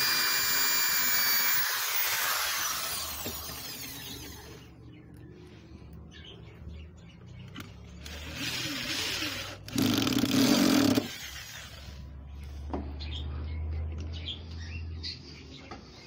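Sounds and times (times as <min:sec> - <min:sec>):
electric drill driving screw into wood: 0:00.0 - 0:04.6, 0:08.0 - 0:11.8.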